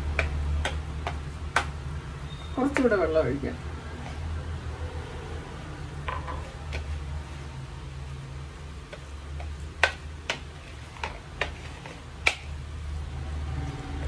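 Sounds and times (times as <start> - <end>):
spoon stirring thick paste: 0.0 - 3.0, 6.2 - 14.0.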